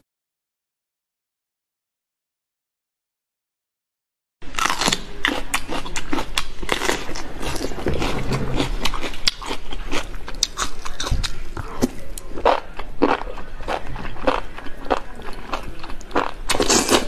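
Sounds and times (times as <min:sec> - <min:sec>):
wet chewing mouth sounds: 0:04.6 - 0:17.0.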